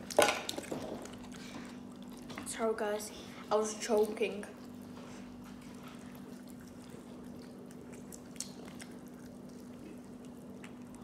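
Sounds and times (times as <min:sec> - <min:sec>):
steady low hum: 0:00.0 - 0:11.0
wet mouth sounds of eating: 0:04.0 - 0:11.0.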